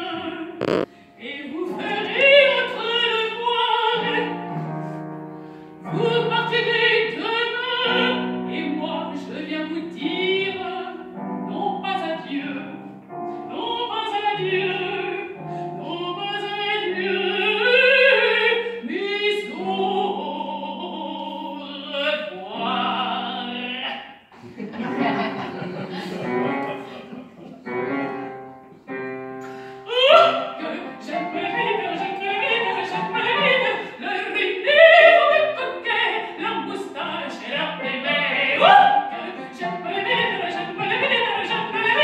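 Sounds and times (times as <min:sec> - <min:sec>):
woman singing opera: 0:00.0 - 0:00.6, 0:01.2 - 0:04.4, 0:05.8 - 0:24.1, 0:29.8 - 0:42.0
piano accompaniment: 0:24.8 - 0:42.0.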